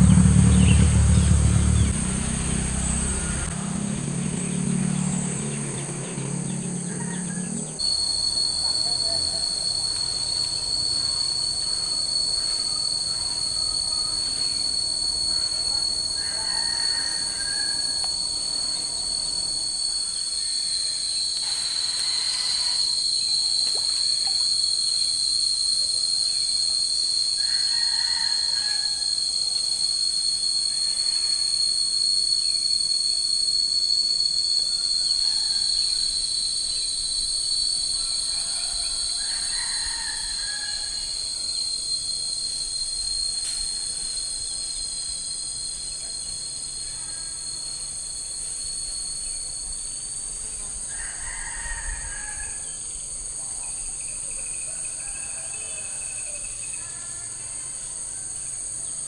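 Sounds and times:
short chirps: 0.0s - 16.5s
insect chorus drone: 0.0s - 59.0s.

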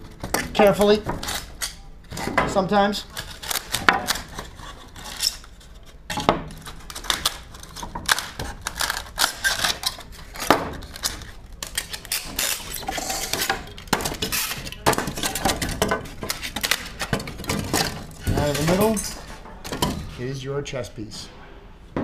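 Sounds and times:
styrofoam rubbing and scraping: 3.1s - 6.0s, 6.6s - 19.3s.

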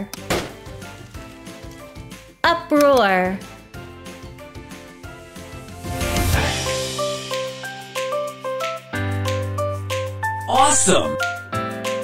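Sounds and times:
quiet background music: 0.0s - 12.0s.

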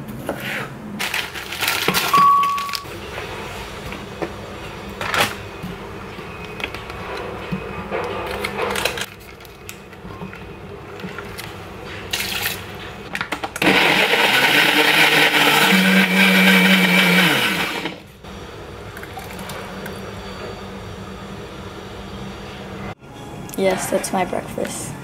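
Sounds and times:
blender running: 13.6s - 18.0s.

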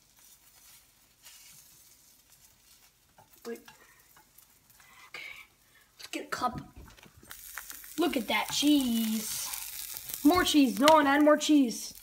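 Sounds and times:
cheese sizzling in a pan: 0.0s - 12.0s.

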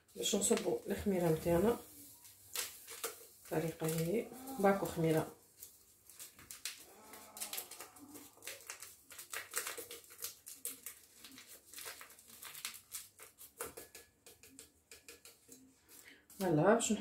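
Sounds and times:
yeast packet crinkling and rustling: 0.0s - 16.5s.

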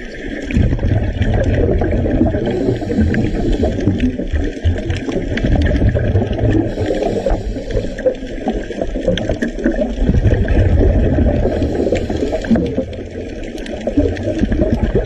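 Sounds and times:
underwater rumbling and gurgling: 0.0s - 15.0s
faint clicks: 11.5s - 14.6s.

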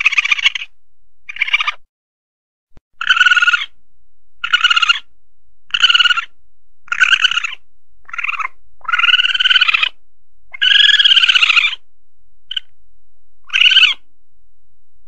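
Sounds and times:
civet cries: 0.0s - 1.9s, 2.9s - 3.8s, 4.4s - 5.1s, 5.7s - 11.9s, 12.5s - 12.8s, 13.4s - 14.1s.

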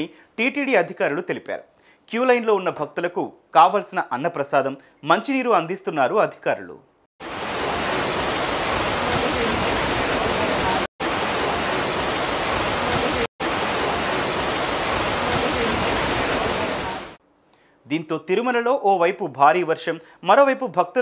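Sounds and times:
floodwater rushing: 7.2s - 17.2s.

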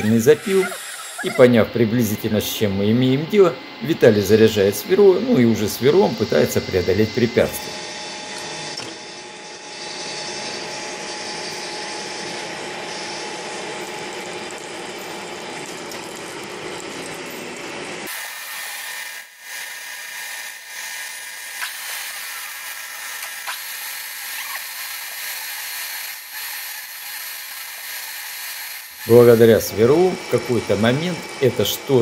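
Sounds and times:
drill cutting metal: 0.0s - 3.3s, 18.0s - 32.0s.

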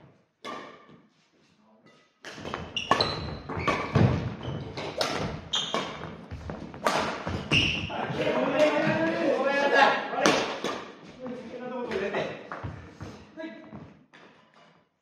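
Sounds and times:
racket striking shuttlecock: 0.4s - 1.0s, 2.2s - 7.6s, 10.2s - 11.0s
sneakers squeaking: 1.8s - 9.1s.

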